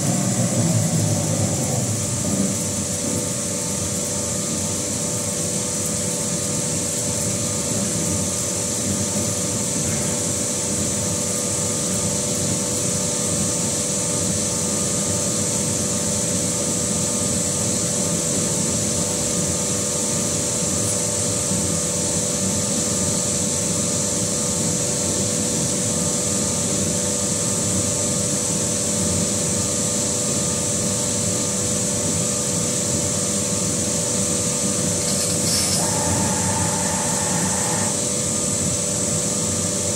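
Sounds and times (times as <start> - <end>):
metal spinning machine whine: 0.0 - 4.8, 33.8 - 39.8.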